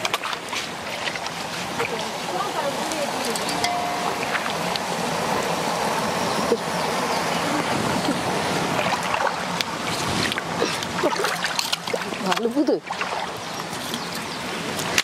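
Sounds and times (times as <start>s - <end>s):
rush of water: 0.0s - 15.0s
shallow water sloshing: 8.5s - 14.0s.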